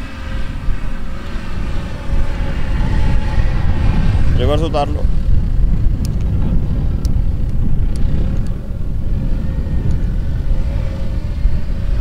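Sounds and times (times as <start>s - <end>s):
distant engine running under load: 0.0s - 12.0s.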